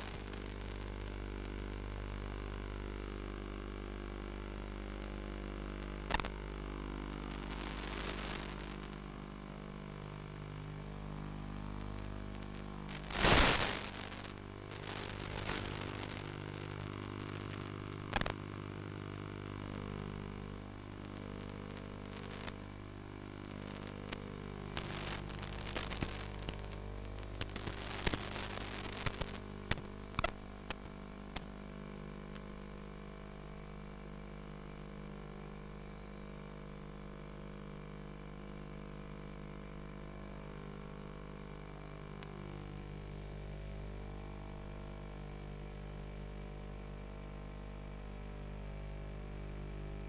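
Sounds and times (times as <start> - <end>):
crackles and clicks: 0.0 - 3.6, 4.4 - 33.0, 41.3 - 42.8
loud burst of static: 0.0 - 3.8, 4.4 - 33.0
electrical hum: 0.0 - 36.2, 36.8 - 50.0
static hiss: 0.0 - 50.0.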